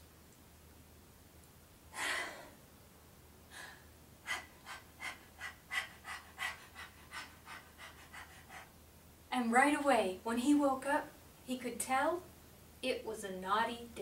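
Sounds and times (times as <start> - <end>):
woman gasping: 2.0 - 2.6, 3.5 - 8.4
woman panting like a dog: 3.5 - 8.8.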